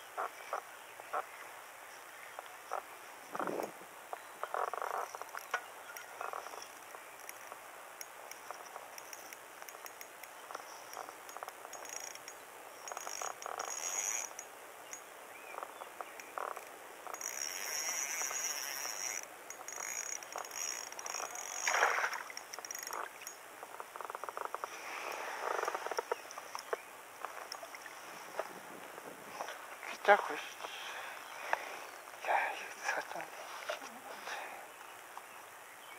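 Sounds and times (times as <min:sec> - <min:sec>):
frogs calling: 0:00.0 - 0:35.0
fishing reel clicking: 0:06.6 - 0:10.2, 0:10.9 - 0:15.0, 0:16.2 - 0:23.4.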